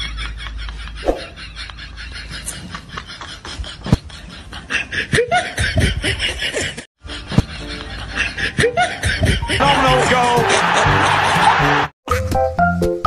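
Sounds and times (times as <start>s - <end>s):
snickering laughter: 0.0s - 9.6s.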